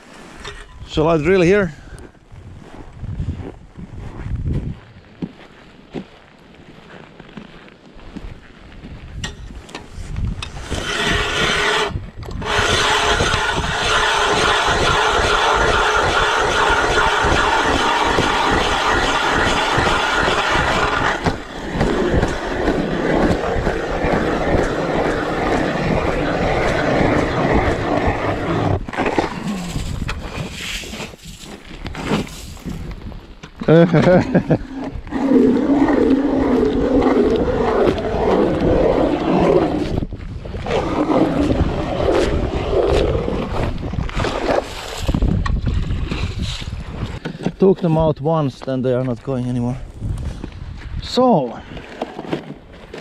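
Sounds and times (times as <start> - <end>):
ice auger grinding: 10.4 - 32.8, 33.9 - 47.6, 51.7 - 53.0.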